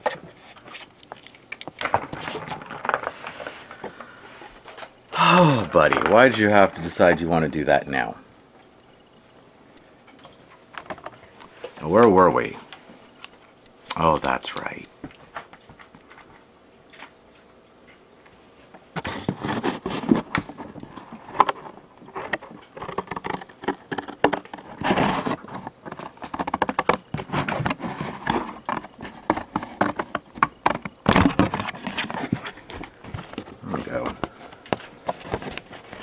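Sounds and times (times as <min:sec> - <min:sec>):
cardboard box scraping and tapping: 0:19.0 - 0:36.0.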